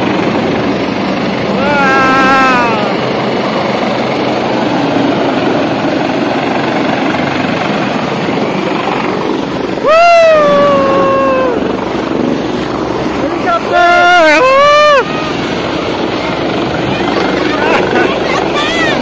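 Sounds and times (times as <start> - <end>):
helicopter rotor noise: 0.0 - 19.0
person calling loudly: 1.6 - 3.0.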